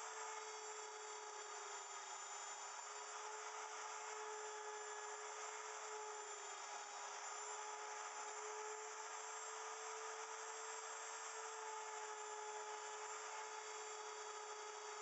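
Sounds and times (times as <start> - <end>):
wood router high whine: 0.0 - 15.0.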